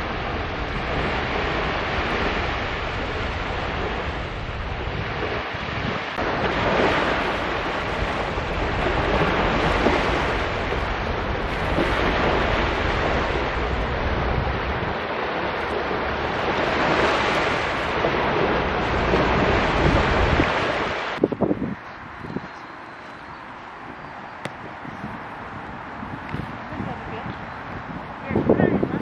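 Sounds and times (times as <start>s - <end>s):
small waves breaking on beach: 0.0s - 21.2s
wind rumbling on microphone: 0.0s - 29.0s.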